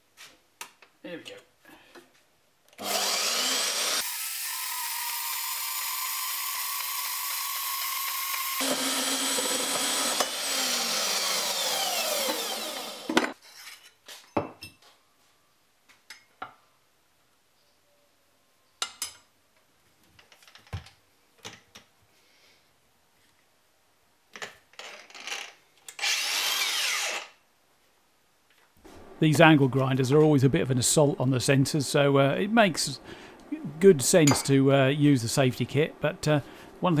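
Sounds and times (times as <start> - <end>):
band saw cutting steel: 2.8 - 13.4, 26.0 - 27.3.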